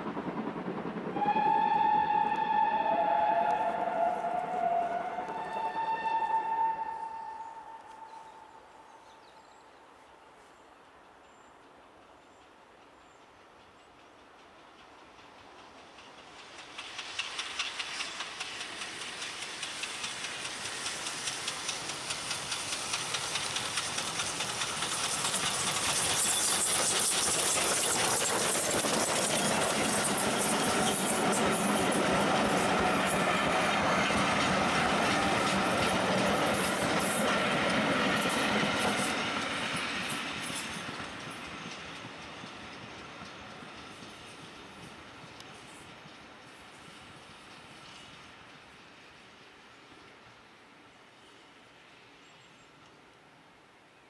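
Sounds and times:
steam locomotive exhaust beats: 0:00.0 - 0:08.8, 0:12.7 - 0:51.7
train wheels clattering over rail joints: 0:13.6 - 0:48.9
steam hissing: 0:14.9 - 0:50.4.

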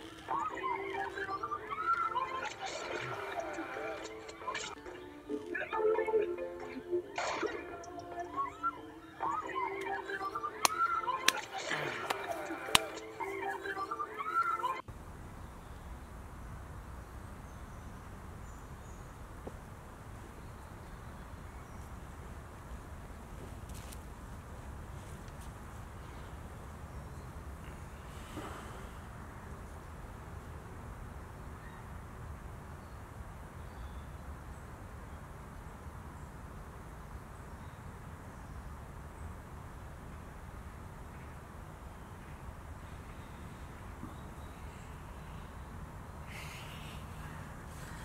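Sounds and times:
low woodland rumble: 0:14.9 - 0:48.0.

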